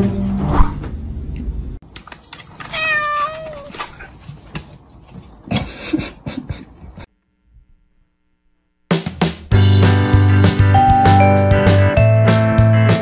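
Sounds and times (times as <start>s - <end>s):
cat meowing: 2.6s - 4.0s.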